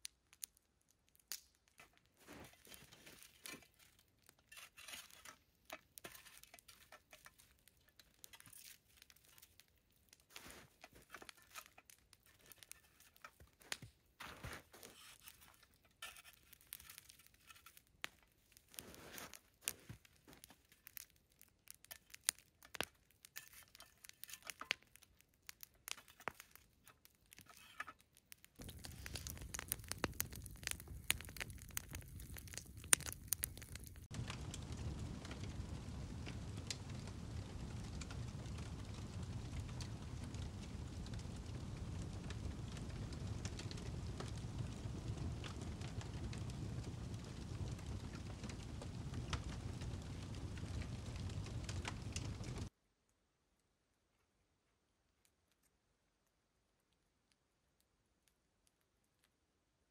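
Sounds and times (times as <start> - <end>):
aluminium foil crinkling: 0.0 - 34.2.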